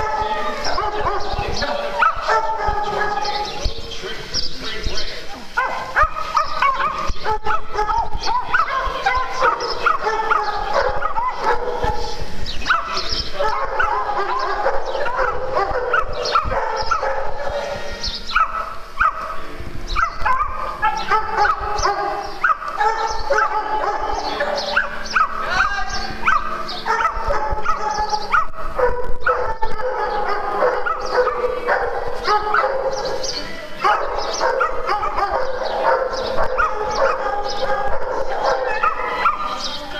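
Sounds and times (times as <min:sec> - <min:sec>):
dogs yipping and barking: 0:00.0 - 0:04.1, 0:05.4 - 0:39.9
dogs whining: 0:26.1 - 0:39.6.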